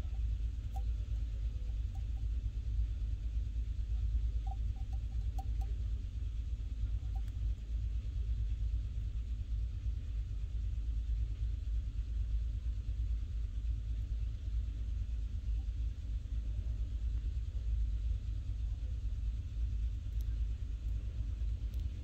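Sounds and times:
steady low rumble: 0:00.0 - 0:22.0
faint light clicks: 0:20.0 - 0:22.0.

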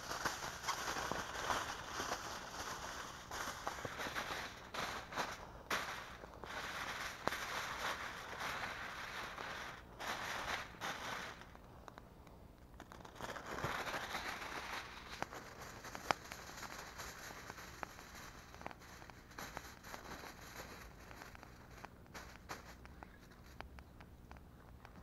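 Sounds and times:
aluminium foil crinkling: 0:00.0 - 0:11.7, 0:12.6 - 0:25.0
sharp crackles: 0:00.0 - 0:25.0.

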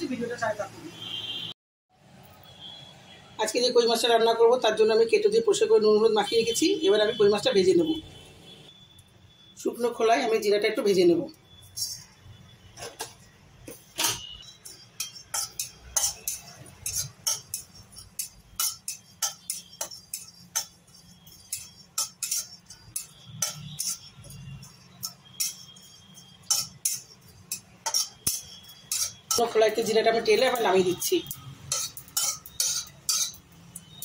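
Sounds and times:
metal spatula scraping a pan: 0:11.5 - 0:34.0.

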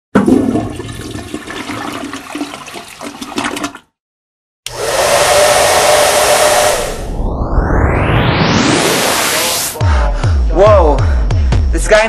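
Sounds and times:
urinal flushing: 0:00.2 - 0:04.0
steady rushing noise: 0:04.7 - 0:09.8.

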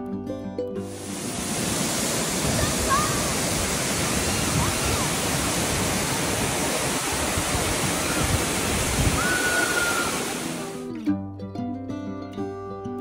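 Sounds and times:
waterfall rushing: 0:00.9 - 0:10.9.

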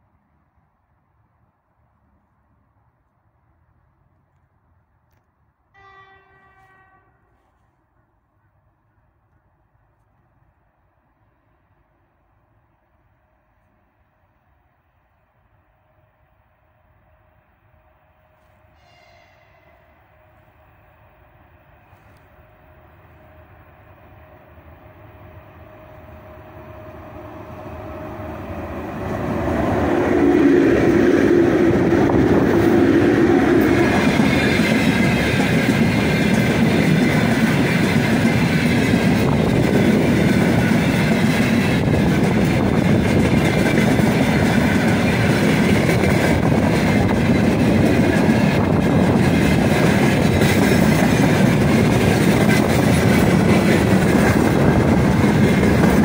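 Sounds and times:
electric locomotive passing: 0:05.6 - 0:56.0
train wheels clattering on rails: 0:29.0 - 0:56.0.

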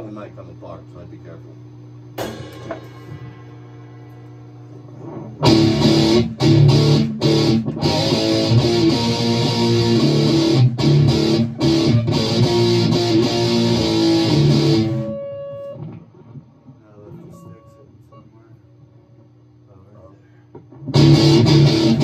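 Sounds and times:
loud electric guitar: 0:05.0 - 0:16.0, 0:20.8 - 0:22.0.

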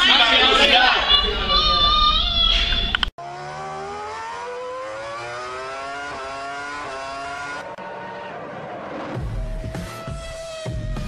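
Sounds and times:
vehicle engine accelerating: 0:03.2 - 0:11.0.

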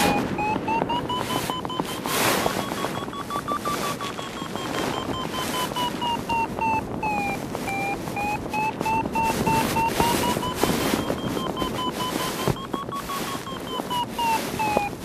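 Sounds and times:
variometer tone: 0:00.0 - 0:15.0
wind noise on microphone: 0:00.0 - 0:15.0.

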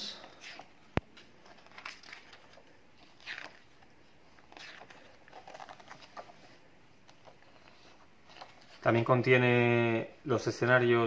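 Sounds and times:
magazine pages turning: 0:00.2 - 0:09.0
paper crinkling: 0:00.2 - 0:09.0.

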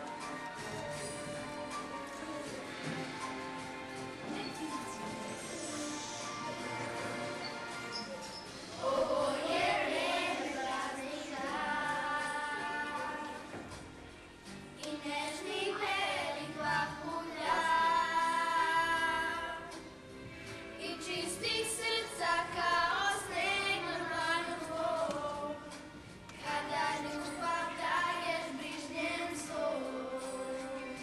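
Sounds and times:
children singing: 0:04.3 - 0:13.8, 0:14.8 - 0:19.8, 0:20.8 - 0:31.0.

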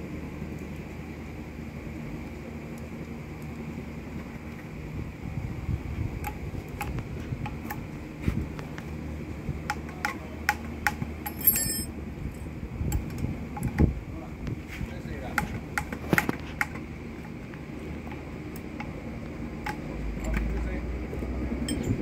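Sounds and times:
steady low hum: 0:00.0 - 0:22.0
loose metal parts rattling: 0:11.2 - 0:11.9
metallic clicks and taps: 0:19.6 - 0:20.8.

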